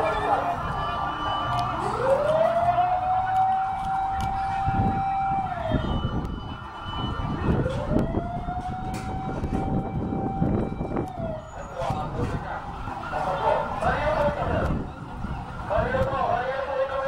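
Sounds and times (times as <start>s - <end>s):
emergency vehicle siren wailing: 0.0s - 17.0s.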